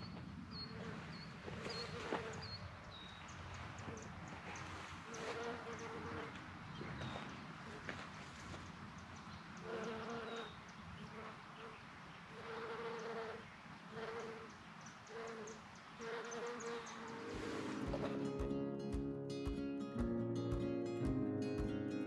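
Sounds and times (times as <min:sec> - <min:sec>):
bumble bee buzzing in flight: 0:01.6 - 0:02.5, 0:05.2 - 0:06.4, 0:09.7 - 0:10.5, 0:12.3 - 0:18.2.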